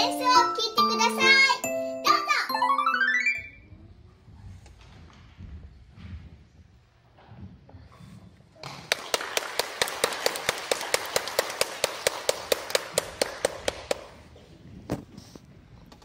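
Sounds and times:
close loud hand claps: 8.6 - 14.2
audience applauding: 8.6 - 14.3.

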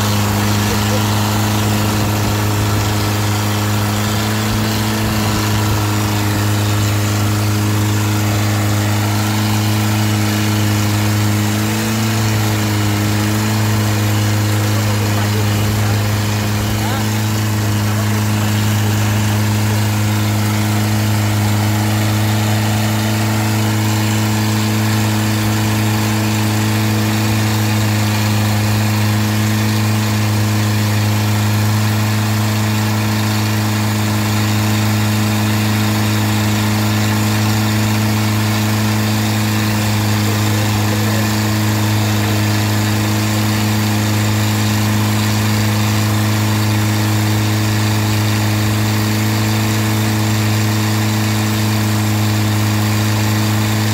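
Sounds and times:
boat engine running: 0.0 - 53.9
rush of spray: 0.0 - 53.9.

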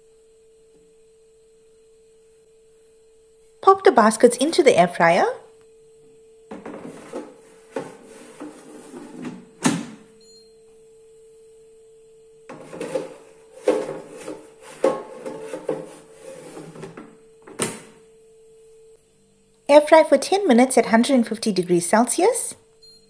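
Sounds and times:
steady hum: 0.0 - 23.0
metal baskets scraping into drawers: 6.8 - 9.4, 12.5 - 17.0.

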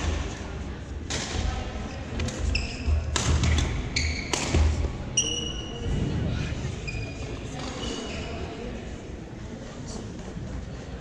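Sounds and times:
shoes squeaking on floor: 2.4 - 3.1, 3.9 - 5.9, 6.8 - 8.5
racket hitting shuttlecock: 3.1 - 4.8.

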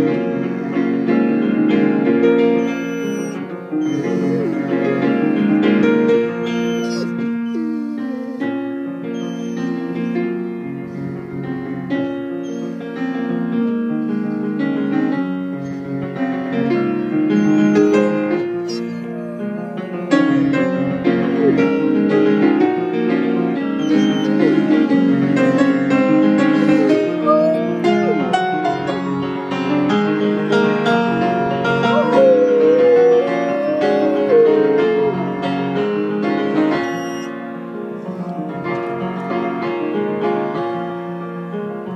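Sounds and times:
piano playing: 0.0 - 41.9
dog howling: 2.4 - 11.4, 14.0 - 14.8, 17.1 - 22.9, 23.6 - 30.0, 31.0 - 37.4.

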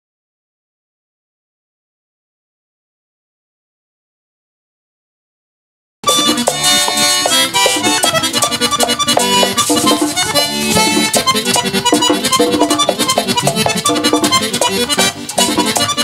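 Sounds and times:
button accordion runs: 6.0 - 16.0
electric bass: 6.0 - 16.0
tambora drum: 6.0 - 16.0
scraping guira: 6.1 - 16.0.

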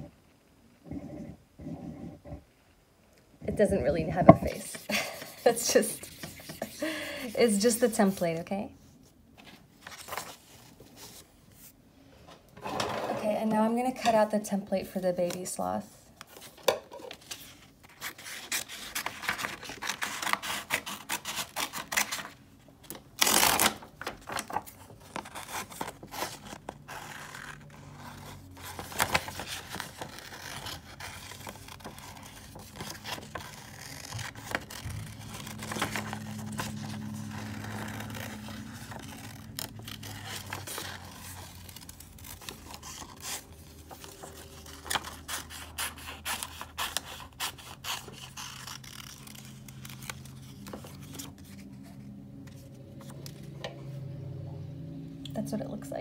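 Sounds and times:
paper rustling: 4.2 - 8.2, 9.0 - 11.8, 15.2 - 53.6
scissors snipping paper: 25.1 - 51.2.

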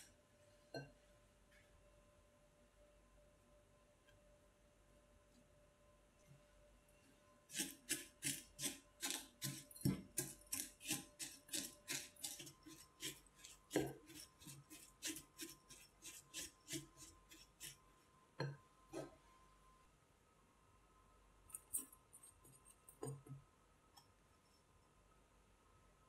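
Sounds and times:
spatula scraping glass bowl: 7.5 - 17.8.

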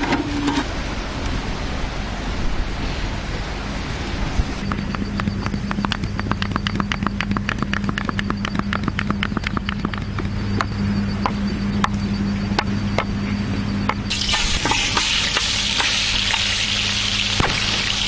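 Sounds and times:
low steady hum: 0.0 - 18.0
sharp clicks: 4.7 - 12.0
fish sizzling in hot oil: 14.1 - 18.0.

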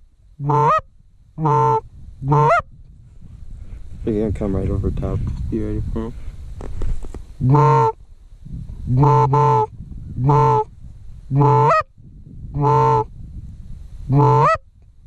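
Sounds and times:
goose call honks: 0.4 - 2.7, 7.4 - 8.0, 8.9 - 10.7, 11.3 - 11.9, 12.6 - 13.1, 14.1 - 14.7.

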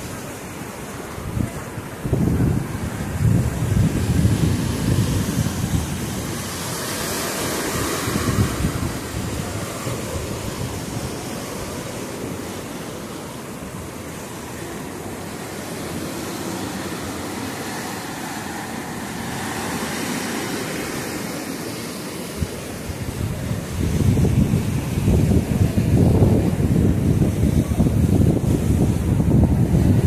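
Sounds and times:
surf breaking against rocks: 0.0 - 30.0.

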